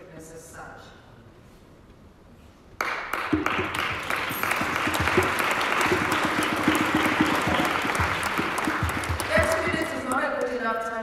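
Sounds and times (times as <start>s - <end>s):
audience applauding: 2.8s - 10.5s.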